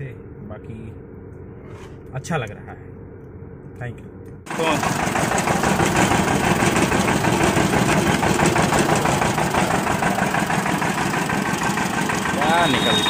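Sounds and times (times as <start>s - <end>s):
stationary engine running: 4.5s - 13.0s.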